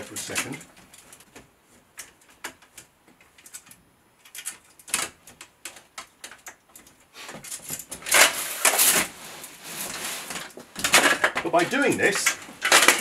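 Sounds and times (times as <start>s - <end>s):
metal armour plates clinking: 10.8s - 13.0s.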